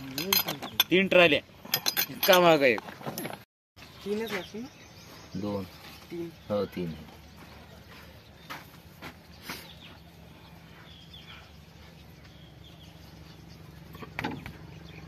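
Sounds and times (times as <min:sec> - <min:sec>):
birds chirping faintly: 0:00.0 - 0:03.0, 0:03.8 - 0:15.0
steady low hum: 0:07.0 - 0:15.0.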